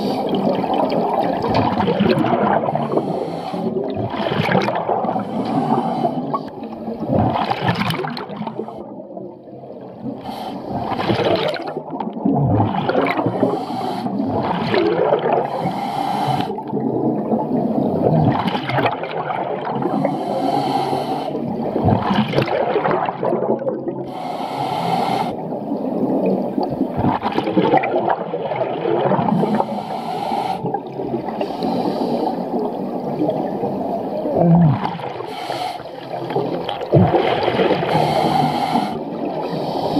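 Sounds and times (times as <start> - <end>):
gurgling exhaled bubbles: 0.0 - 15.6, 16.4 - 20.1, 21.5 - 24.1, 25.3 - 29.9, 30.6 - 39.9
scuba regulator hissing inhalations: 2.8 - 3.8, 5.2 - 6.5, 10.2 - 10.7, 13.4 - 14.3, 15.5 - 16.6, 19.8 - 21.4, 24.1 - 25.4, 29.3 - 32.6, 35.2 - 36.1, 37.9 - 39.9.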